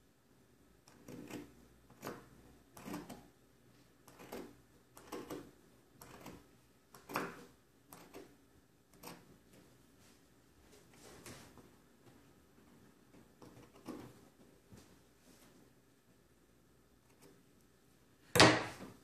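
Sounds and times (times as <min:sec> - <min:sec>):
scissors snipping fabric: 0:00.9 - 0:03.3, 0:04.1 - 0:08.3.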